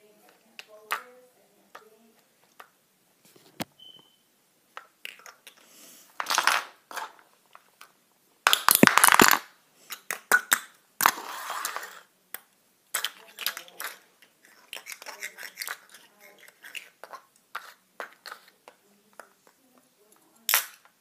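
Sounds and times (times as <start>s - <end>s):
plastic toys tapping on wooden floor: 8.5s - 10.7s.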